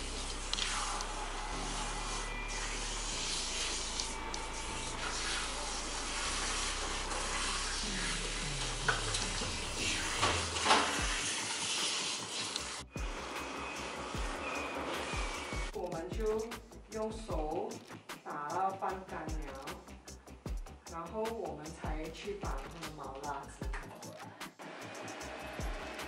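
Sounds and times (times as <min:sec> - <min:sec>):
shower head spraying water: 0:00.0 - 0:15.8.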